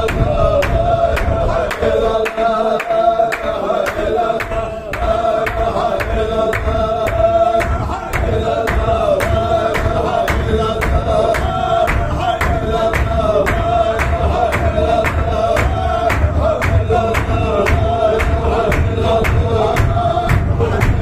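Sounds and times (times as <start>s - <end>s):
group of voices chanting: 0.0s - 21.0s
sharp rhythmic beat: 0.0s - 21.0s.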